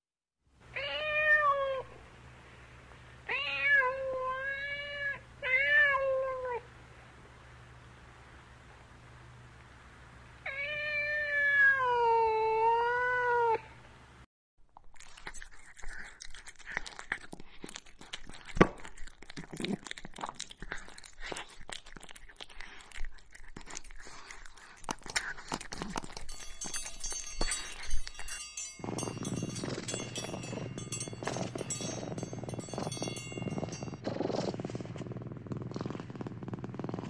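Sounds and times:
cat meowing: 0.8s - 1.9s, 10.5s - 13.6s
high ringing tones: 26.2s - 34.3s.

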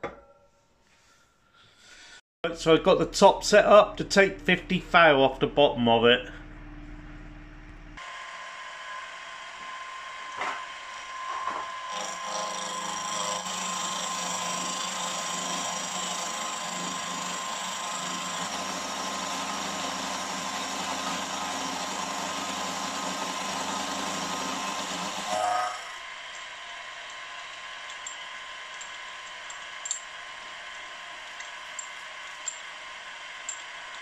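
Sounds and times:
milling machine cutting metal: 10.0s - 34.0s.

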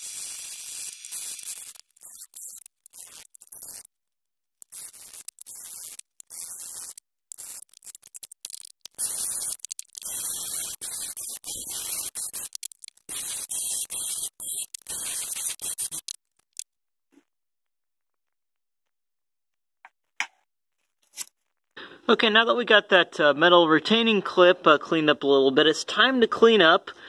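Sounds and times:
wire brush scratching rusty metal: 0.0s - 3.9s, 4.6s - 16.6s.

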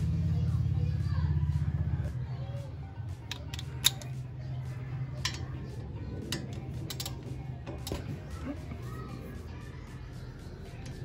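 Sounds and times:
hand ratchet clicking: 3.3s - 4.2s, 6.3s - 8.1s.

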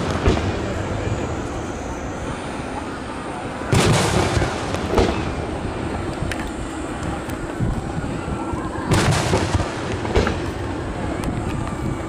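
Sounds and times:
fireworks booms echoing: 0.0s - 2.2s, 3.7s - 6.2s, 8.8s - 11.1s
wind buffeting microphone: 0.0s - 12.0s.

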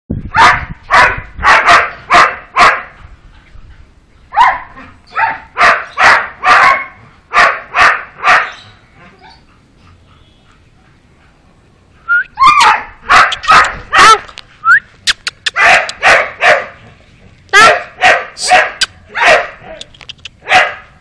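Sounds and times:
puppy barking: 0.3s - 2.9s, 4.4s - 8.6s, 12.4s - 14.2s, 15.4s - 16.8s, 17.5s - 19.8s, 20.4s - 21.0s.

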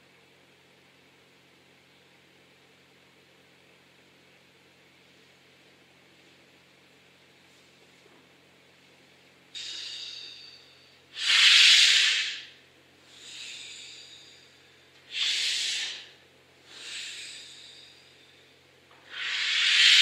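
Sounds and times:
slow heavy breathing: 12.2s - 20.0s.

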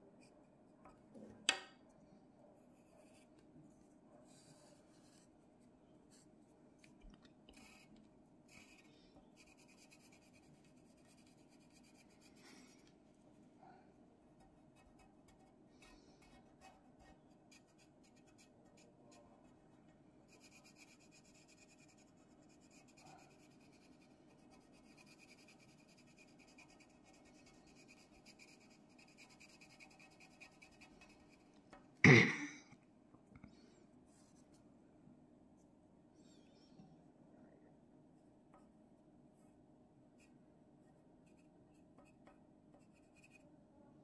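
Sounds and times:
pencil scratching on paper: 2.7s - 3.3s, 4.3s - 5.2s, 7.5s - 7.9s, 8.5s - 12.9s, 14.4s - 19.5s, 20.3s - 31.5s, 41.3s - 43.5s
person vocal burst: 32.0s - 32.6s.

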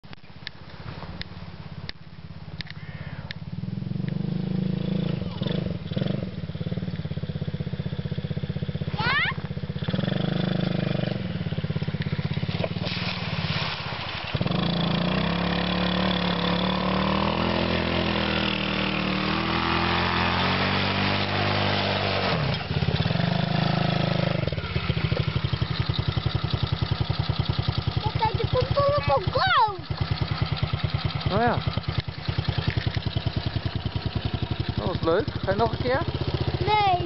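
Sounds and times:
small quad engine revving: 2.4s - 37.0s
water splashing: 11.8s - 17.6s.

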